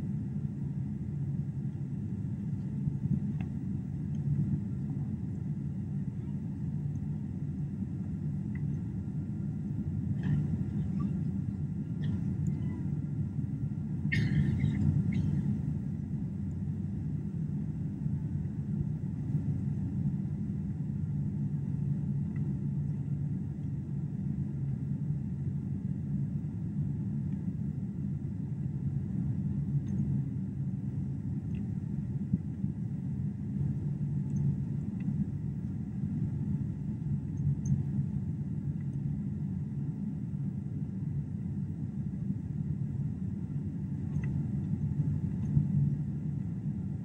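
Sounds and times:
airliner cabin engine rumble: 0.0s - 47.0s.

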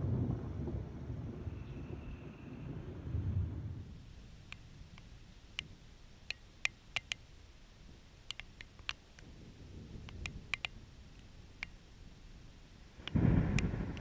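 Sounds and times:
faint low rumble: 0.0s - 6.2s, 7.2s - 14.0s
raindrops ticking on plastic housing: 8.2s - 11.8s, 13.0s - 14.0s.

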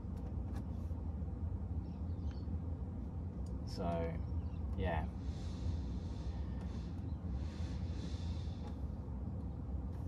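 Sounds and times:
steady low hum: 0.0s - 10.0s
soft breaths through the nose: 5.1s - 10.0s.

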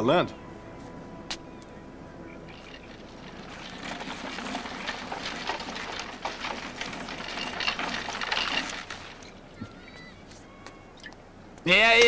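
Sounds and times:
plastic wheels rattling on concrete: 2.5s - 9.7s.

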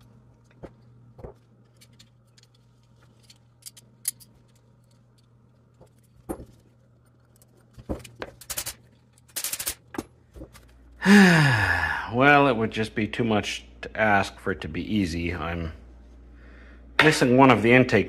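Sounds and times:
steady low hum: 0.0s - 18.0s
small metal parts clinking: 1.6s - 9.9s.

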